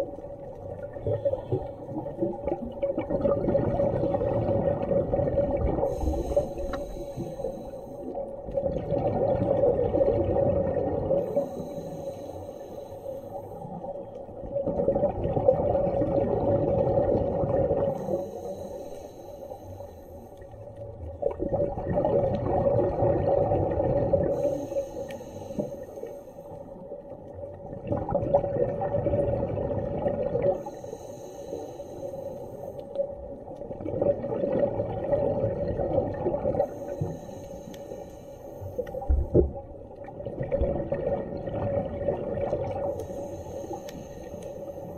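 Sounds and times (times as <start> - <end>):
muffled underwater rushing: 0.0 - 11.9.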